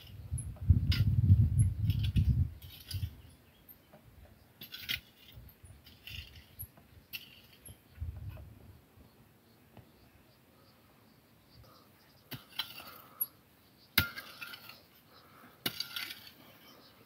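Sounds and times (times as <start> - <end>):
metal rake scraping dry soil: 0.0 - 3.4, 4.6 - 8.4, 12.2 - 17.0.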